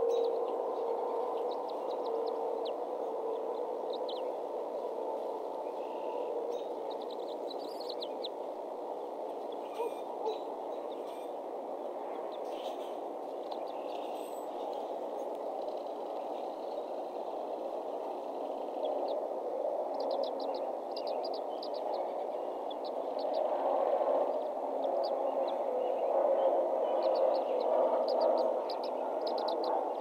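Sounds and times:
steady rushing noise: 0:00.0 - 0:30.0.

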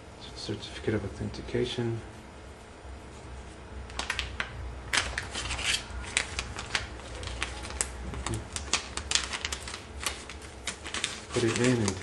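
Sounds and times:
plastic packaging crinkling: 0:03.9 - 0:12.0.

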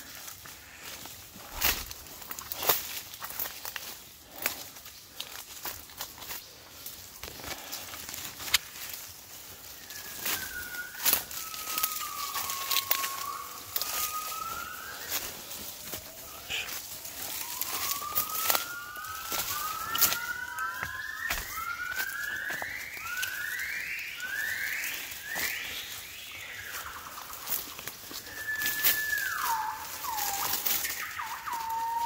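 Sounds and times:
twigs and leaf litter crackling: 0:00.0 - 0:32.0
gibbons whooping calls: 0:09.8 - 0:32.0.

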